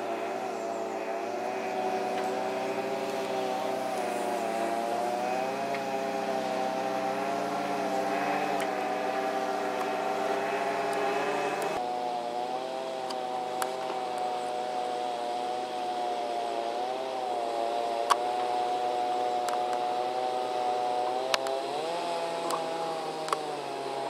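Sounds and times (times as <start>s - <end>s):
light aircraft engine drone: 0.0s - 24.0s
faint clicks: 8.4s - 8.8s, 19.4s - 19.8s, 21.0s - 21.6s, 22.4s - 23.5s.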